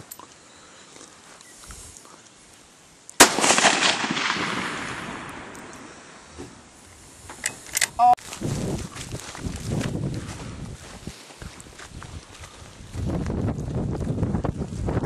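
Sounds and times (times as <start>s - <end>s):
rifle shot: 3.2s - 5.9s.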